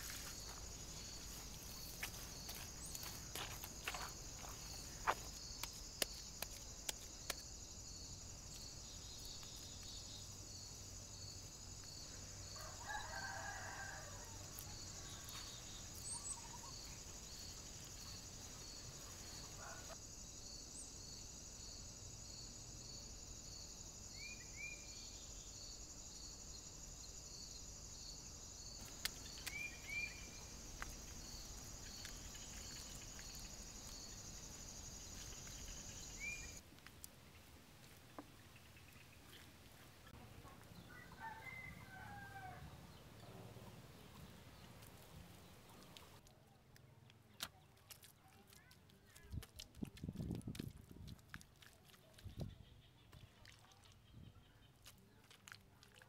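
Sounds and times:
rooster crowing: 12.6s - 14.5s, 41.0s - 42.7s
high insect chirring: 25.6s - 36.6s.

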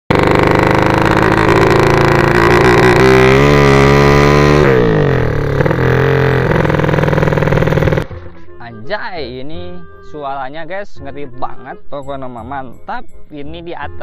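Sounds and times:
small engine revving: 0.1s - 8.3s.

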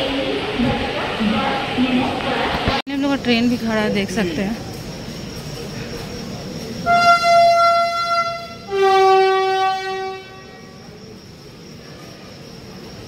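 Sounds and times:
platform background noise: 0.0s - 8.8s
locomotive horn blasts: 6.8s - 10.8s.

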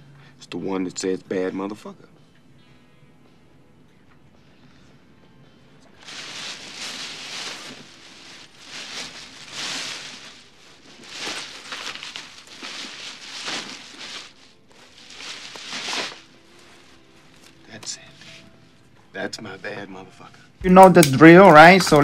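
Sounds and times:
bag rustling and crinkling: 5.9s - 17.6s.

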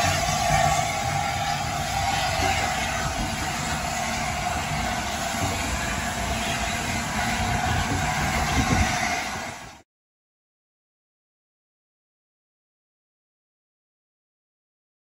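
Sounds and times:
steam train hissing and rumbling: 0.0s - 9.8s.

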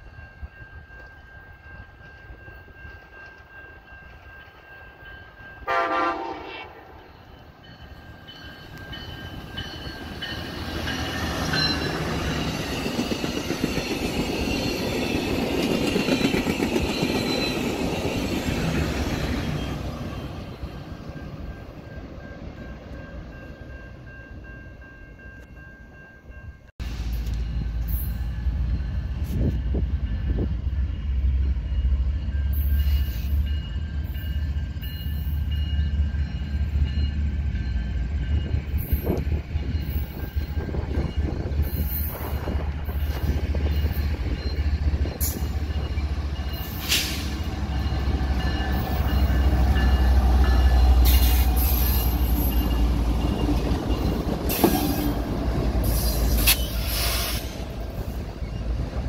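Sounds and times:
train wheels clattering on rails: 0.0s - 5.4s, 7.2s - 20.2s, 32.2s - 59.0s
diesel locomotive rumbling: 0.0s - 59.0s
train horn: 5.6s - 7.1s.

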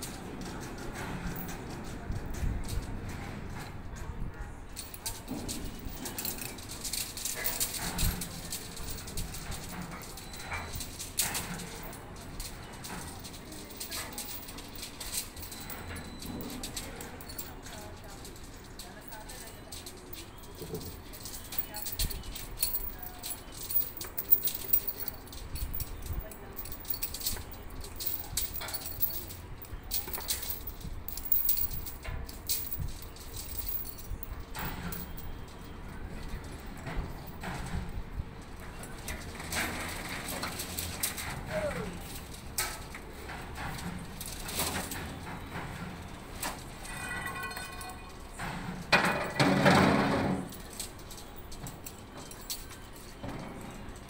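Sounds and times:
steel chains clinking and rattling: 0.0s - 54.0s
loud metallic clatter: 46.8s - 51.1s.

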